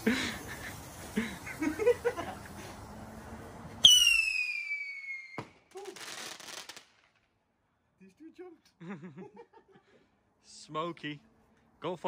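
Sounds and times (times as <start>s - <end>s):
firework crack: 0.0s - 7.6s
whistling firework descending: 0.4s - 7.2s.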